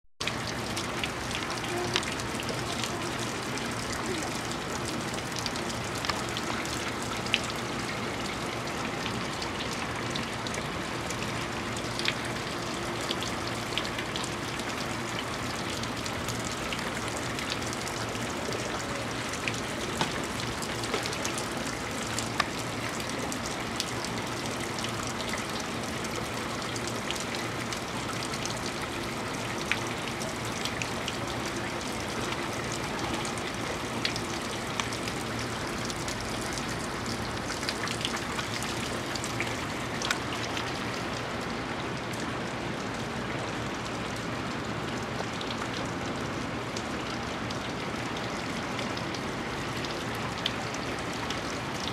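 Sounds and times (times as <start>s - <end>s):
water drips and splashes: 0.2s - 51.9s
waterfall fountain splashing: 0.2s - 51.9s.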